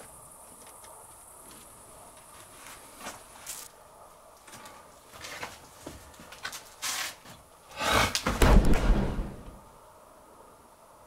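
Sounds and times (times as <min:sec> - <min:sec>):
heavy scraping thud: 0:07.8 - 0:09.6.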